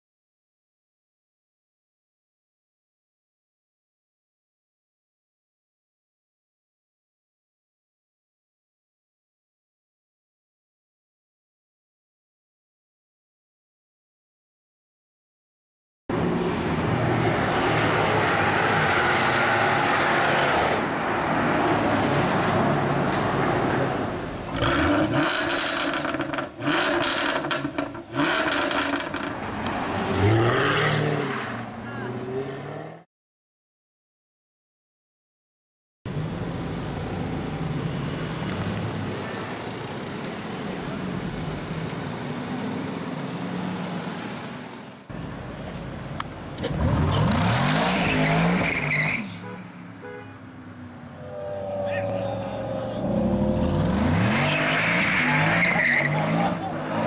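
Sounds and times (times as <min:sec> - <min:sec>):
car engine revving: 0:24.5 - 0:33.0, 0:51.2 - 0:57.0
exhaust crackles and pops: 0:25.2 - 0:29.4
car engine driving by: 0:50.8 - 0:57.0.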